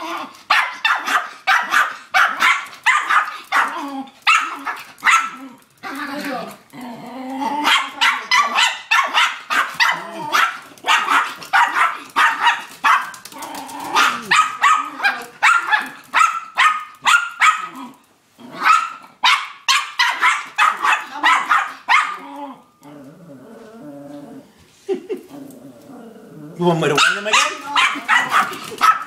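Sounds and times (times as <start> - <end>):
small dog barking: 0.5 - 5.5, 7.6 - 17.9, 18.5 - 22.3, 26.9 - 29.0.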